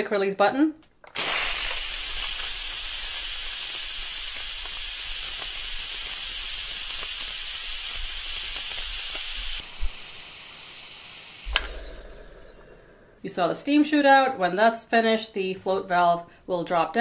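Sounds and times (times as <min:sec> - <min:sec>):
pressure cooker steam hissing: 0:01.2 - 0:11.6
brief click: 0:11.5 - 0:12.9.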